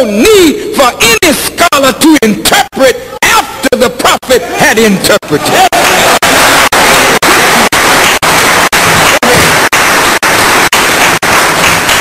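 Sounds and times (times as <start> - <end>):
loud static hiss: 5.3 - 12.0.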